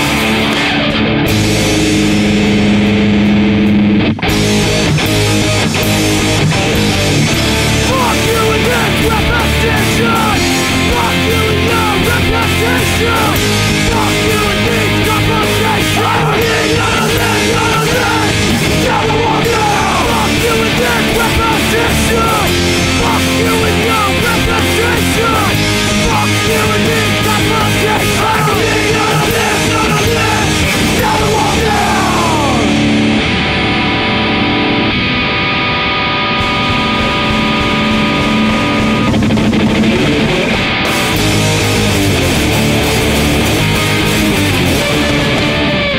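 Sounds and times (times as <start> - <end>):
loud rock song: 0.0 - 45.9.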